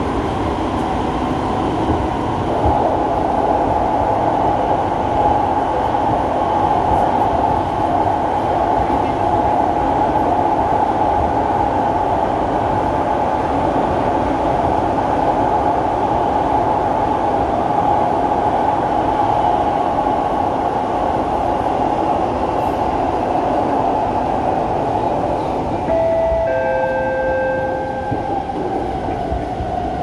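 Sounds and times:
metro train rumbling on track: 0.0 - 30.0
two steady tones: 25.8 - 28.7.

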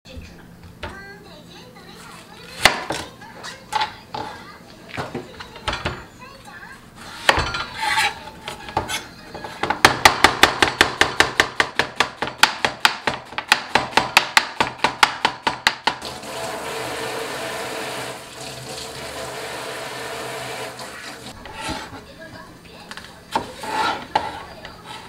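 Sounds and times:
knife slicing onion on board: 21.0 - 22.0, 23.3 - 25.0.

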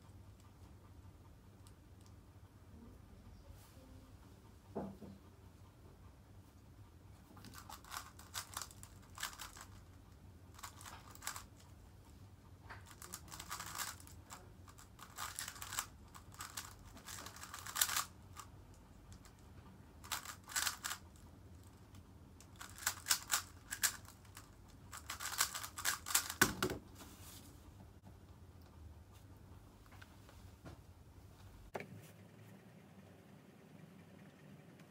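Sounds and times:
plastic puzzle cube clicking: 7.4 - 9.9, 10.5 - 11.7, 12.8 - 18.5, 20.0 - 26.7.

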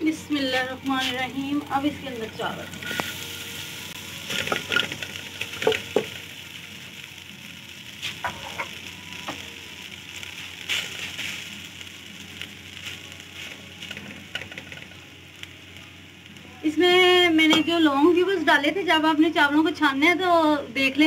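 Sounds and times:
rice sizzling in a pan: 0.0 - 21.0
metal spoon scraping a pan: 2.2 - 3.2, 8.0 - 8.8.

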